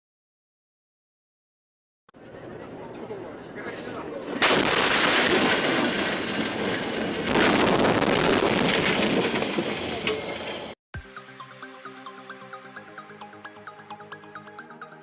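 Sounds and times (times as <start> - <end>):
car crash impact: 4.4 - 9.9
breaking glass and debris clattering: 4.4 - 10.7.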